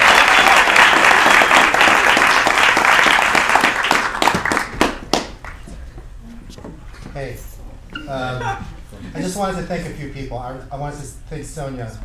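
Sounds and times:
audience applause: 0.0s - 5.6s.

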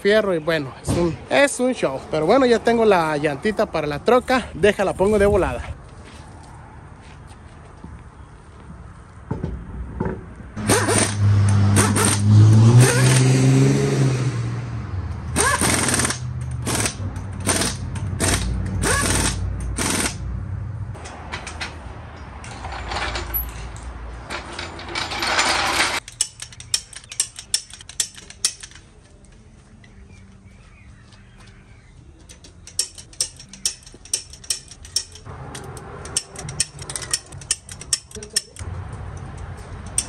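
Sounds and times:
impact wrench whining and hammering: 9.3s - 13.5s, 15.2s - 20.2s, 21.0s - 28.8s.

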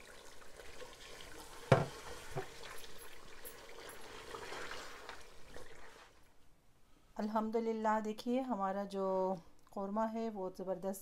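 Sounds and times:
spatula knocking against pot: 1.7s - 2.5s.

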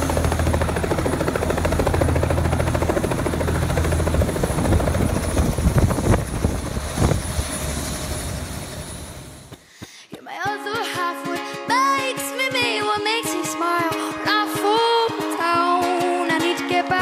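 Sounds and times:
gusty rushing noise: 0.0s - 9.5s
helicopter engine running: 0.0s - 9.6s
helicopter rotor chopping: 0.0s - 9.7s.

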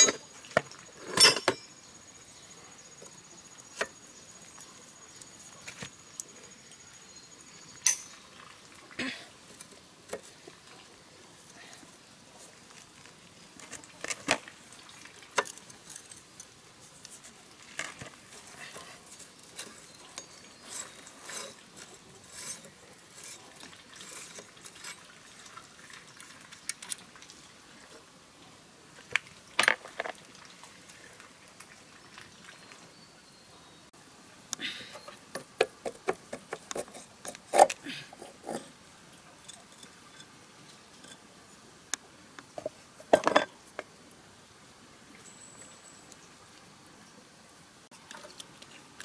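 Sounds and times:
metal rod scraping a metal pipe: 19.6s - 25.0s.

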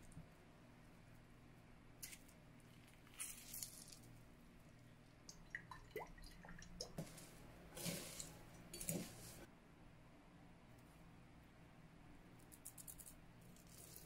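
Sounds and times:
wet squishing and dripping: 2.0s - 7.1s.

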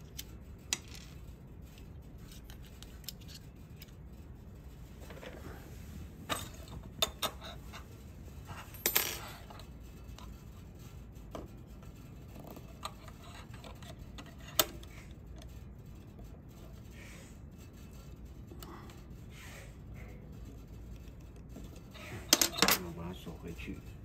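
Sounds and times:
metal tools clinking on workbench: 8.6s - 9.5s, 22.3s - 23.0s
metal parts clattering: 22.0s - 23.2s.

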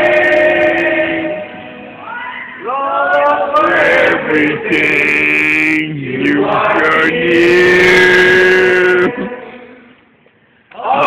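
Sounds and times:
men singing and chanting together: 3.2s - 9.8s.

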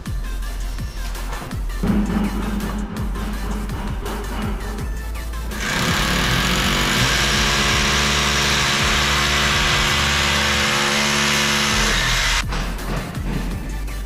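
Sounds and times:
electric drill boring into wall: 5.6s - 12.4s.

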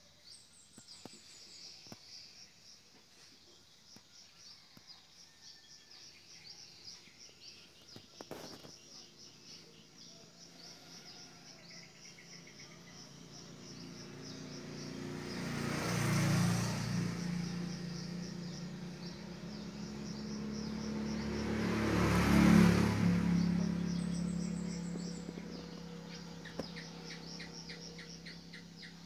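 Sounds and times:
insects chirping: 0.1s - 29.0s
passing vehicle hum: 10.4s - 29.0s.

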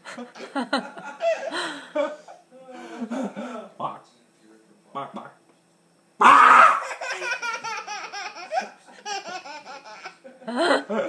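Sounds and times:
toddler laughing: 6.8s - 10.5s.

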